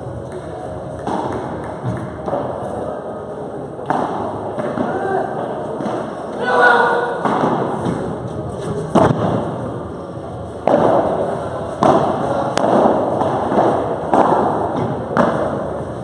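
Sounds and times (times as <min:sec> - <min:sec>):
rackets hitting ball: 0:00.2 - 0:02.9, 0:03.7 - 0:06.4, 0:07.0 - 0:16.0
ball bouncing off floor and walls: 0:08.9 - 0:09.6.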